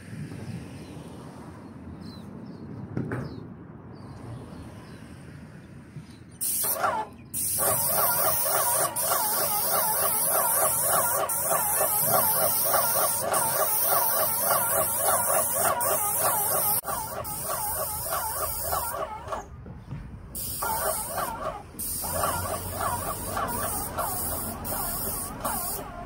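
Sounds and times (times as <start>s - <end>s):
paint spray gun hissing: 6.4s - 19.4s, 20.4s - 26.0s
rapid squeaky chirping: 6.6s - 19.5s, 20.5s - 26.0s.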